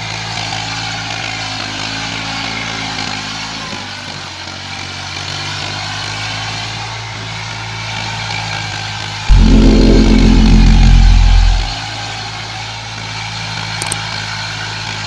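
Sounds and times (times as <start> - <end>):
loud low rumble: 9.3 - 11.8.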